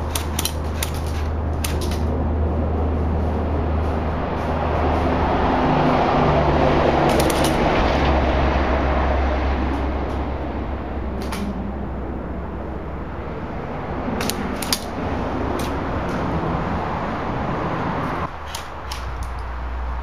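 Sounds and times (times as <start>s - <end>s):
airsoft rifle shots: 0.0s - 2.1s, 7.1s - 7.7s, 11.2s - 11.6s, 14.2s - 15.0s.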